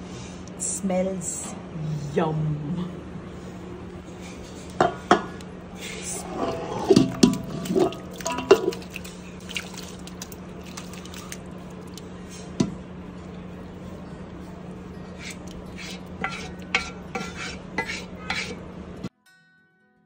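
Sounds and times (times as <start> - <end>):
steady low hum: 0.0 - 19.1
spoon clinking on metal pots: 6.4 - 9.5, 13.4 - 18.7
wet splats of food: 7.0 - 12.8.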